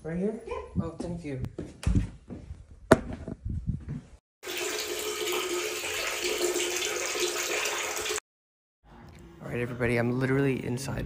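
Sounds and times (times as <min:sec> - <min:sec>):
knocks and rustles: 0:01.6 - 0:04.2
water running from a tap: 0:04.4 - 0:08.2.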